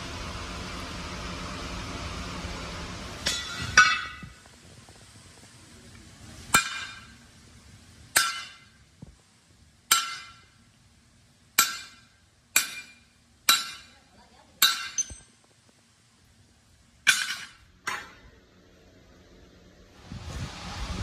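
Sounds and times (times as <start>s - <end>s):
hammer striking steel: 3.2s - 4.4s, 6.5s - 7.2s, 8.1s - 8.8s, 9.9s - 10.6s, 11.6s - 15.4s, 17.0s - 18.3s.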